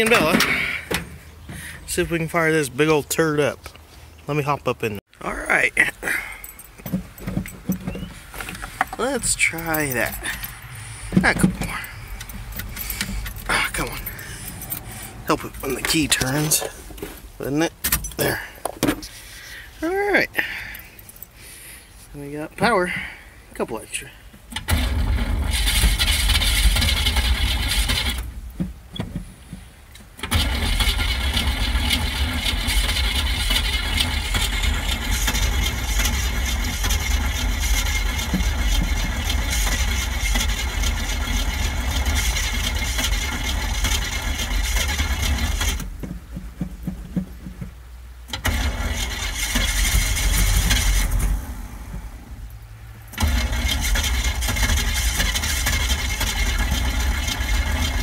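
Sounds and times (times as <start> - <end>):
engine running unevenly: 6.8 - 17.2, 30.2 - 47.7, 48.4 - 58.0.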